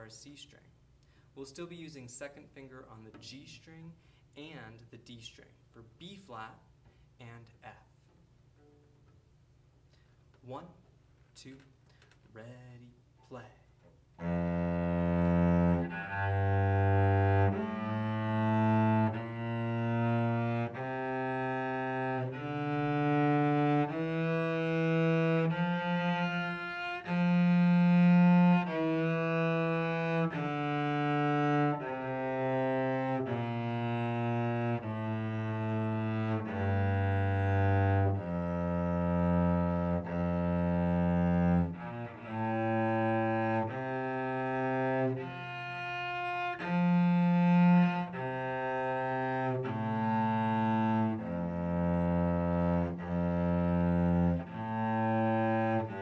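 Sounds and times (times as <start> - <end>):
cello playing a scale: 14.2 - 56.0.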